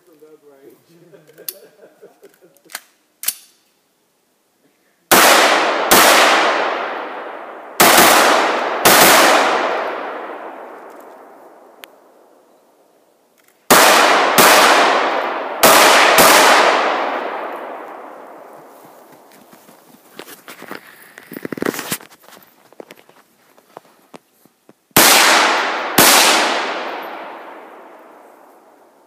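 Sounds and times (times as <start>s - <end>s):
rifle shots echoing: 5.1s - 12.3s, 13.7s - 19.2s, 25.0s - 29.0s.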